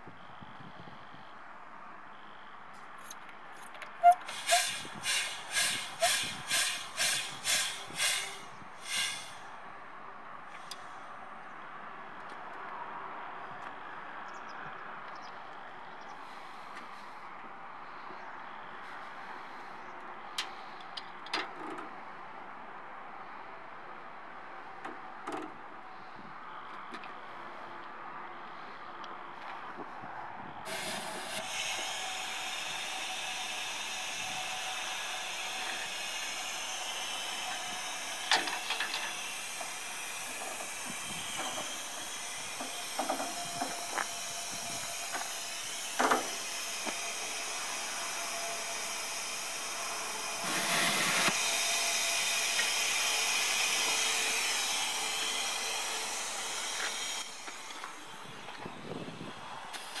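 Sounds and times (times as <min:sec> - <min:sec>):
compressed air hissing: 0:04.0 - 0:09.5, 0:30.7 - 0:57.3.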